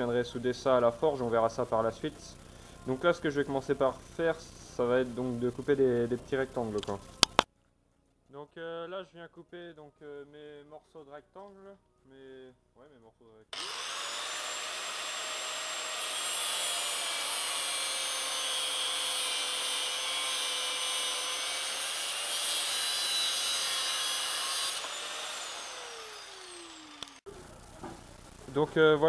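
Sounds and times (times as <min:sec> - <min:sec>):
angle grinder whine: 0:13.6 - 0:27.3.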